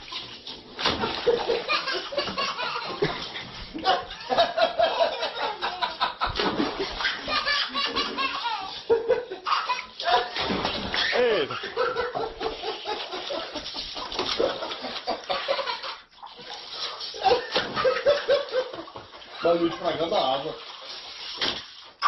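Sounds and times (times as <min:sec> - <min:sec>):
people laughing hard: 0:01.0 - 0:10.4, 0:11.1 - 0:16.1, 0:17.2 - 0:19.9.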